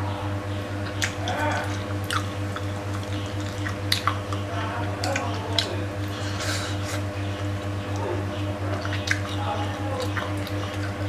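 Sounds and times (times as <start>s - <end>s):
steady low hum: 0.0s - 11.0s
sharp mouth clicks: 0.8s - 7.1s, 8.8s - 9.4s
wet chewing and lip-smacking: 0.8s - 11.0s.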